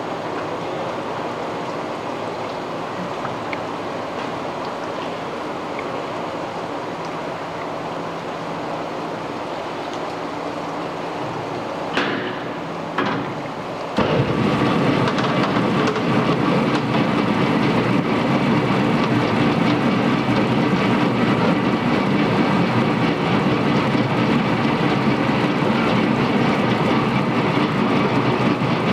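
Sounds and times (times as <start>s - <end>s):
washer-peeler rollers turning: 14.0s - 28.9s.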